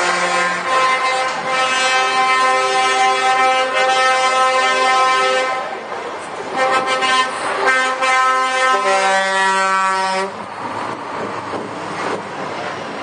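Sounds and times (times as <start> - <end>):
lorry air horns: 0.0 - 5.8, 6.5 - 10.4
passing truck engine and tyres: 0.0 - 13.0.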